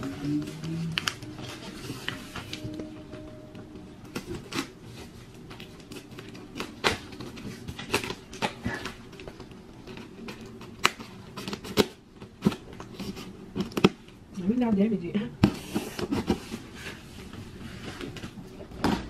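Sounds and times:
cardboard rustling: 0.0s - 13.9s
scissors cutting packing tape: 5.6s - 9.3s, 9.9s - 14.0s.

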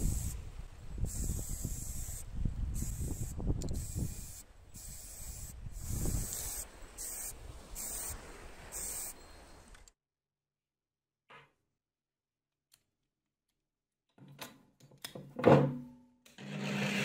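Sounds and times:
spray can hissing: 0.0s - 0.4s, 1.1s - 9.1s.

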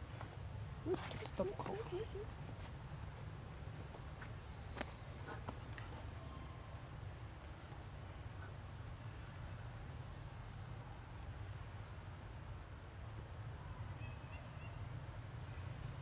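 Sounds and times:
high-pitched insect trill: 0.0s - 16.0s.

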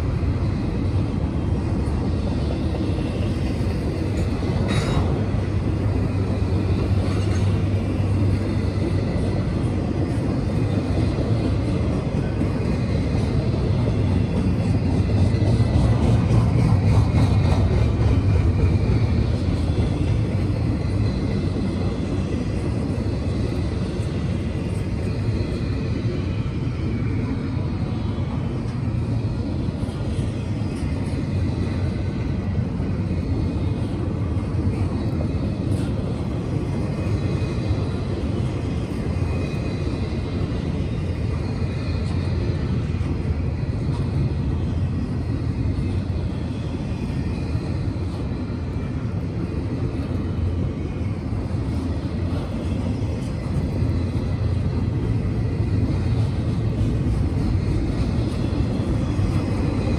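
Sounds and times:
freight train wheels rumbling: 0.0s - 59.9s.

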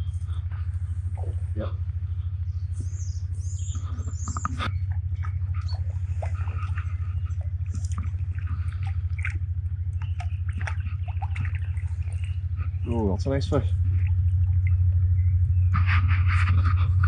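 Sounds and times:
low pulsing hum: 0.0s - 17.0s
fish splashing in water: 4.6s - 12.9s, 13.7s - 15.8s.

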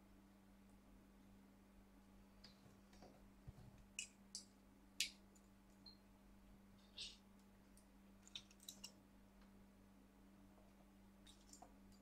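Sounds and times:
faint clicks and taps: 2.4s - 6.0s.

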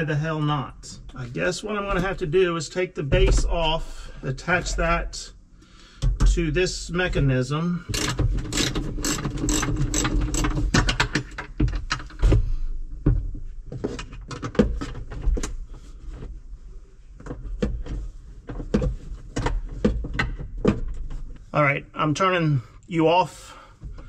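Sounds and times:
metal clicks and clanks: 7.9s - 12.2s.

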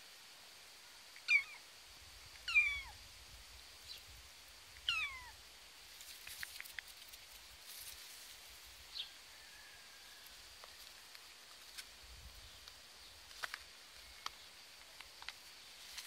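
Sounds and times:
faint high hiss: 0.0s - 16.0s
soft clicks and rustles: 5.9s - 8.3s, 12.6s - 16.0s.

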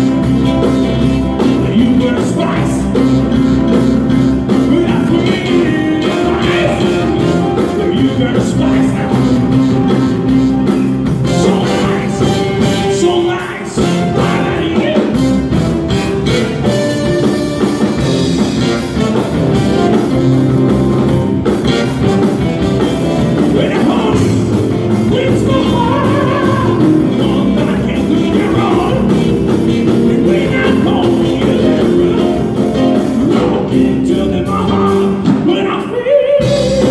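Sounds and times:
drums: 0.0s - 36.9s
electric guitar: 0.0s - 36.9s
person singing: 0.1s - 3.2s, 4.5s - 10.1s, 11.2s - 15.4s, 23.2s - 36.9s.

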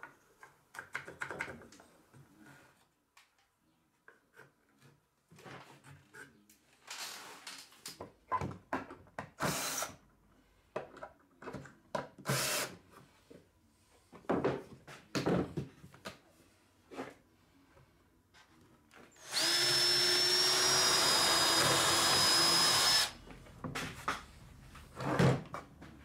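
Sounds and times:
cordless drill driving screws: 9.4s - 9.9s, 12.3s - 12.7s, 19.2s - 23.2s.

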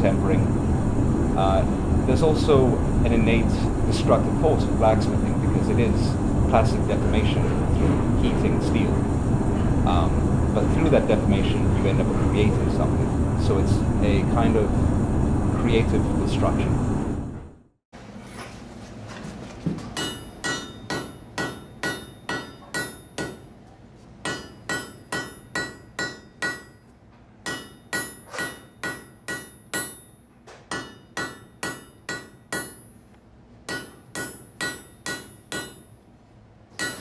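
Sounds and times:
hammer striking steel on anvil: 20.0s - 23.5s, 24.2s - 33.0s, 33.7s - 36.0s, 36.8s - 37.0s.

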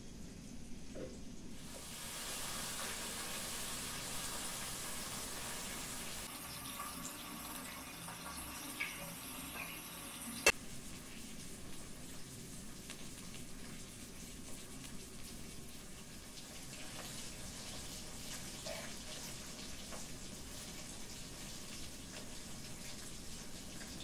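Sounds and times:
pot hissing on gas burner: 1.5s - 24.0s.

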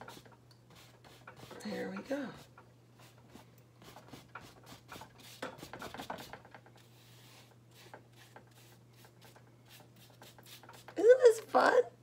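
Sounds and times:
paintbrush scrubbing on canvas: 0.0s - 11.4s.

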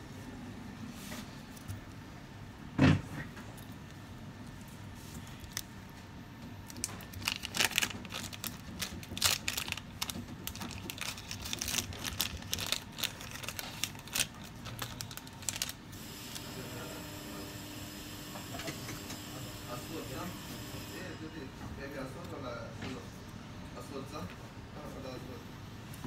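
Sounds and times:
plastic bag crinkling: 6.6s - 16.0s.

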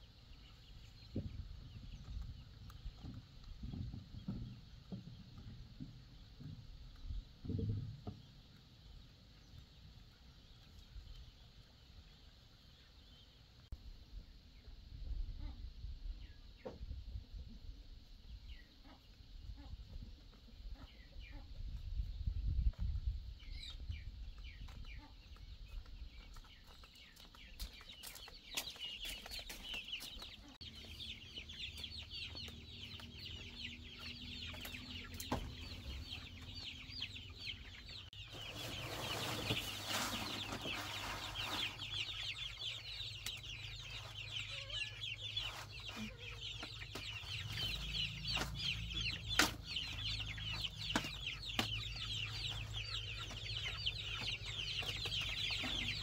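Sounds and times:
chicks peeping: 0.0s - 56.0s
rustling of crate being handled: 38.3s - 42.1s.

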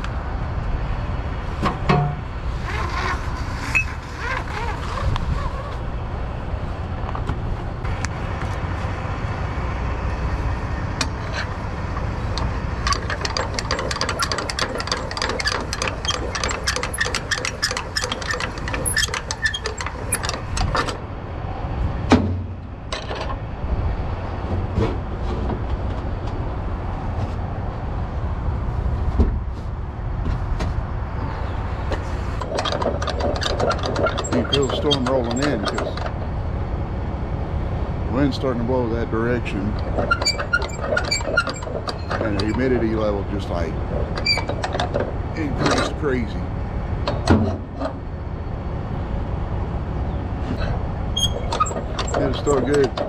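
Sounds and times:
steady low rumble: 19.9s - 32.5s.

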